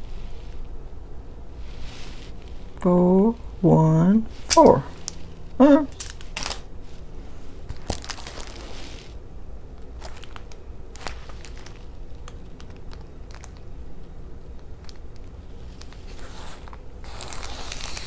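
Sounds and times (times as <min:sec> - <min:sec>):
plastic film crinkling: 0:05.9 - 0:06.7, 0:07.6 - 0:09.2, 0:10.0 - 0:13.7, 0:14.5 - 0:18.0.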